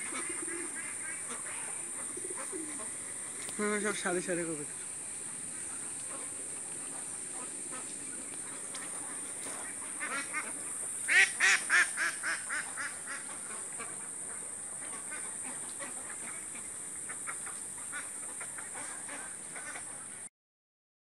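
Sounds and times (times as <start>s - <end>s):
poultry calling: 0.0s - 20.3s
steady high hiss: 0.0s - 20.3s.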